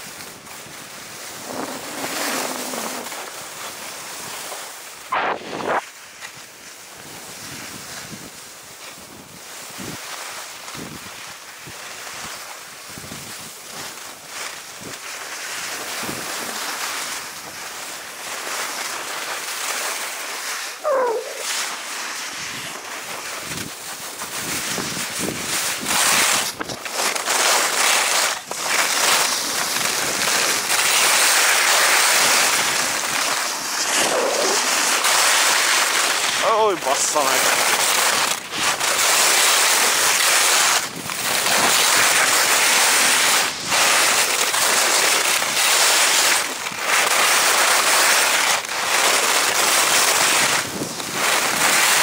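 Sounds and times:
skis scraping over snow: 0:00.0 - 0:52.0
wind on microphone: 0:05.1 - 0:05.8.

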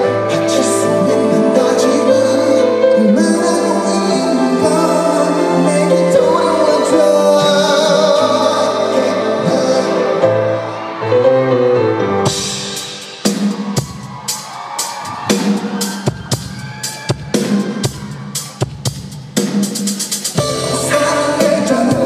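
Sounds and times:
live pop music: 0:00.0 - 0:22.0
drum beat with sharp hits: 0:12.3 - 0:22.0.

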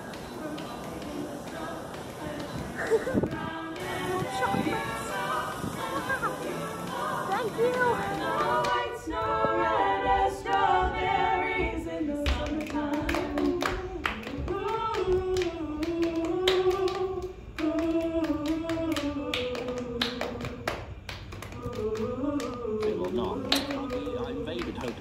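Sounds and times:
voices singing in harmony: 0:00.0 - 0:25.0
tapped or clapped beat: 0:10.4 - 0:25.0.

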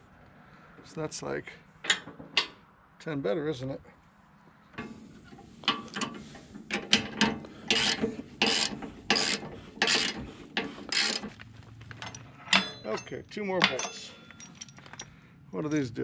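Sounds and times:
ratchet wrench clicking: 0:07.7 - 0:10.2, 0:10.9 - 0:11.3.

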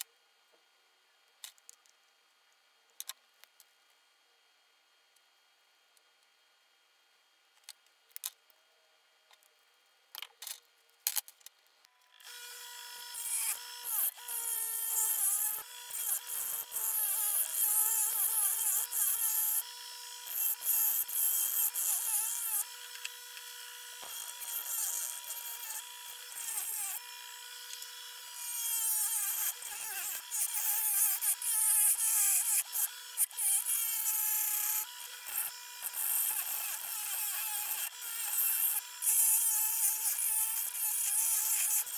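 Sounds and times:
bench grinder grinding metal: 0:12.1 - 0:41.9.

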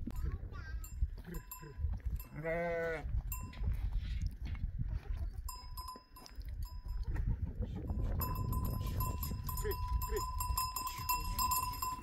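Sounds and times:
metal livestock bells clinking: 0:00.0 - 0:03.9, 0:05.3 - 0:12.0
sheep bleating: 0:02.3 - 0:03.1.

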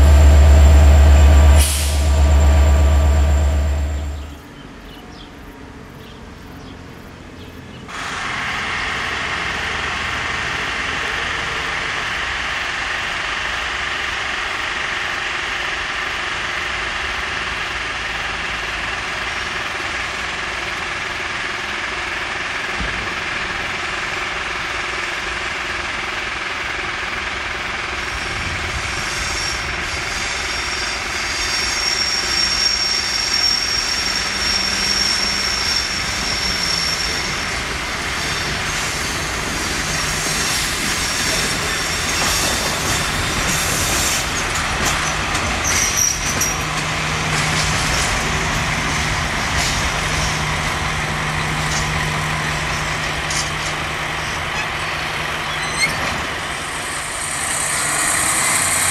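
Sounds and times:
high thin squeal: 0:00.0 - 0:04.4, 0:28.8 - 0:46.6, 0:54.2 - 0:58.9
wagon wheels rumbling over track: 0:00.0 - 0:05.0, 0:35.4 - 0:58.9
locomotive engine drone: 0:00.0 - 0:58.9.

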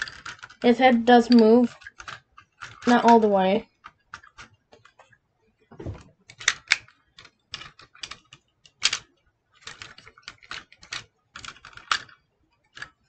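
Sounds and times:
plastic toy parts clicking: 0:00.0 - 0:05.0, 0:06.3 - 0:13.0
soft bump: 0:05.7 - 0:06.1.

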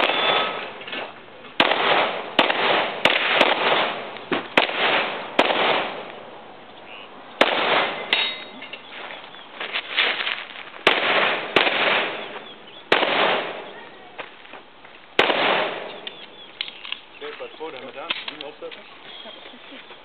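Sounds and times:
pistol shots with echo: 0:00.0 - 0:00.8, 0:01.6 - 0:06.2, 0:07.4 - 0:08.3, 0:10.8 - 0:13.8, 0:15.2 - 0:16.8.

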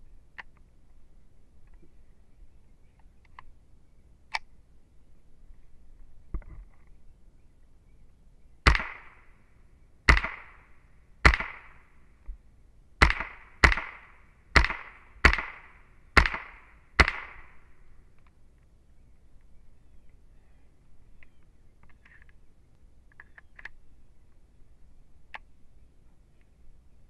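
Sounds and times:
rifle shots: 0:08.7 - 0:09.3, 0:10.1 - 0:11.8, 0:13.0 - 0:17.7.

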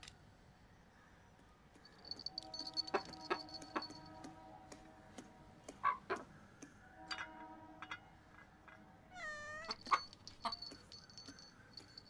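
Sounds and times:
cat meowing: 0:09.1 - 0:10.0.

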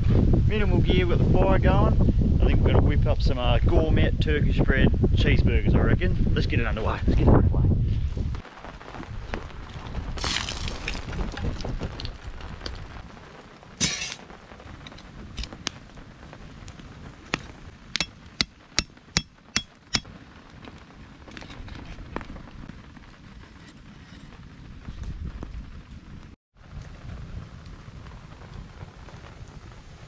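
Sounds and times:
rainwater pouring off tarp: 0:08.4 - 0:17.8.

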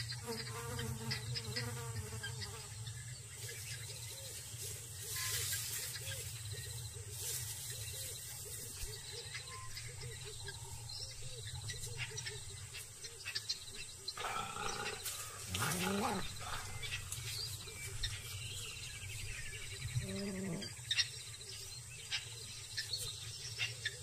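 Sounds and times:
loud animal call: 0:14.1 - 0:17.1, 0:20.0 - 0:20.8
bush drone: 0:14.2 - 0:17.5.

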